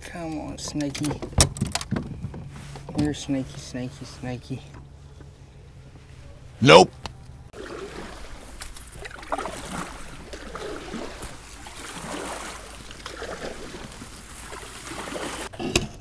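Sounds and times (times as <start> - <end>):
kayak paddle strokes in water: 7.5 - 15.5
water splashing and trickling: 7.5 - 15.5.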